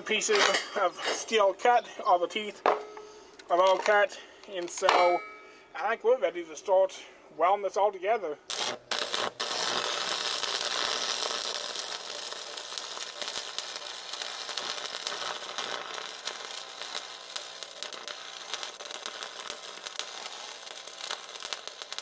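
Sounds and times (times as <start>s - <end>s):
welding arc crackling sizzle: 8.5s - 22.0s.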